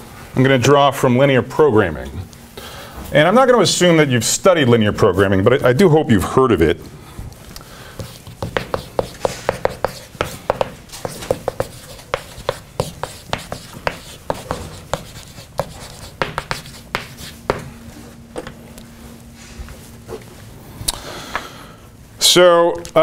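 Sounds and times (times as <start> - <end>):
chalk writing on blackboard: 8.0 - 17.7.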